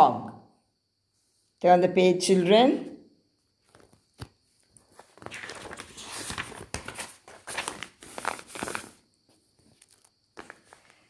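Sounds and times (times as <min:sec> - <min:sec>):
paper pages rustling: 0:03.6 - 0:11.0.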